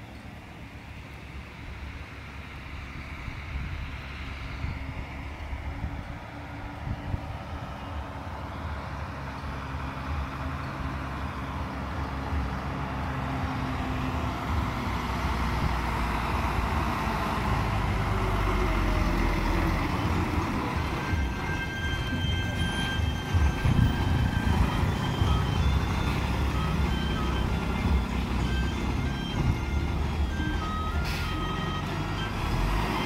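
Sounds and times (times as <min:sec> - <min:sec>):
bus diesel engine: 0:00.0 - 0:33.0
high steady tone: 0:18.1 - 0:33.0.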